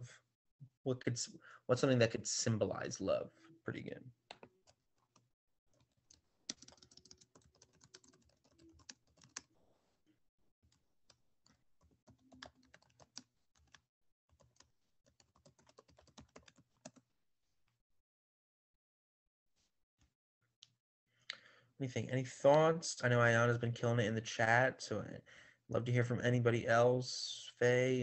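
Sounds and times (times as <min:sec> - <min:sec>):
typing on keyboard: 0:06.5 - 0:09.5, 0:11.8 - 0:17.0.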